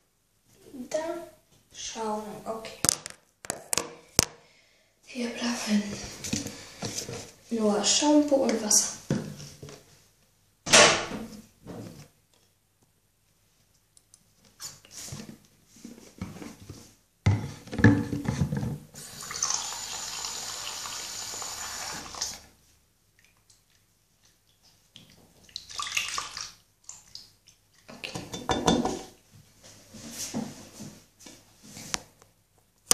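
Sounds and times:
tap running water: 19.0s - 22.5s.

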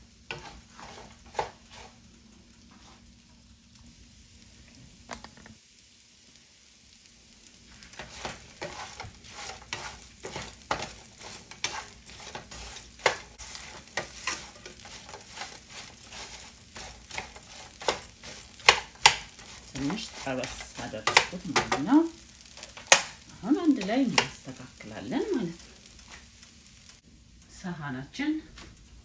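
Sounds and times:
bread frying in oil sizzling: 0.0s - 29.0s
wooden spoon scraping a pan: 0.2s - 2.0s, 2.7s - 3.1s, 7.7s - 26.9s.

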